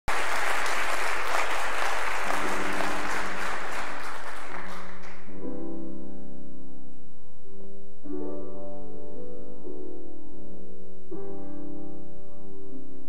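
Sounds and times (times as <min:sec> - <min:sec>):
audience applauding: 0:00.0 - 0:05.3
grand piano playing soft notes: 0:02.3 - 0:13.0.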